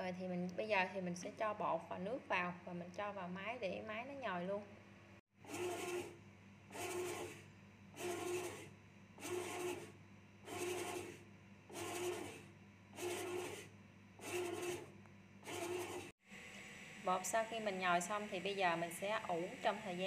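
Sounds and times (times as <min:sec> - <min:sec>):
bread machine kneading dough: 0:05.5 - 0:16.1.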